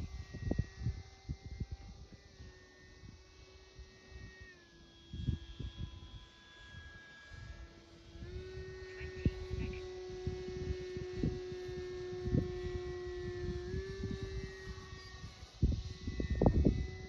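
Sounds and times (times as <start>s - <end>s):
wind buffeting microphone: 0.0s - 2.5s, 8.2s - 17.0s
model jet fan whine: 0.0s - 17.0s.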